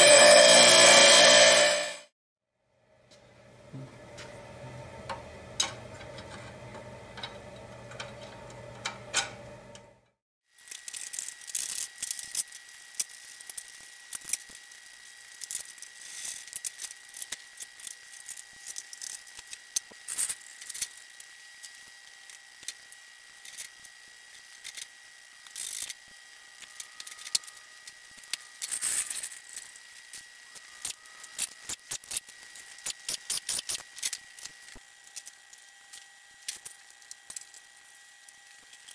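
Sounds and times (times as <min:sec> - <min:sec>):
faint high whine: 0:00.0 - 0:02.1.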